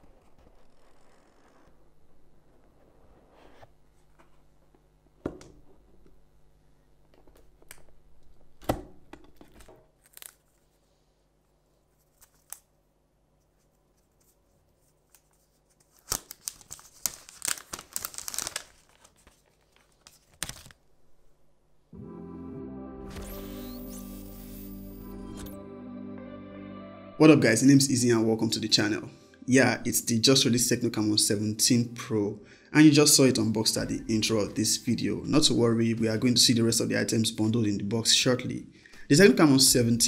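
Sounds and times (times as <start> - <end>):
plastic film crinkling and tearing: 10.0 - 10.7, 15.1 - 20.8.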